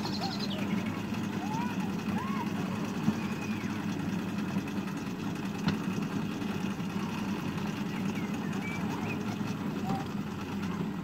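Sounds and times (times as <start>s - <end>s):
locomotive engine humming: 0.0s - 11.0s.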